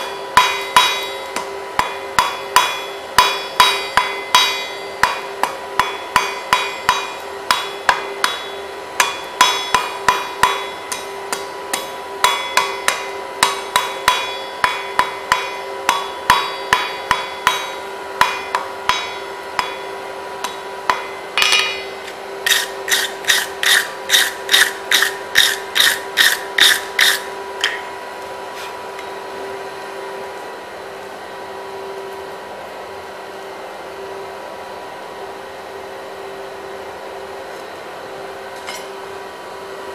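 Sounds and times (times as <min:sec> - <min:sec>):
hammer striking anvil: 0:00.0 - 0:27.9
steady hum: 0:00.0 - 0:39.9.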